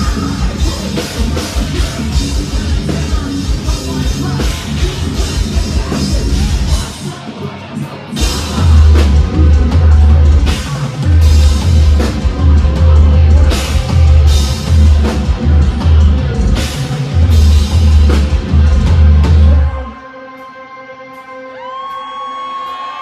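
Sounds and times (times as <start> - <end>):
metal band playing live: 0.0 - 23.0
pounding drums: 8.2 - 19.9.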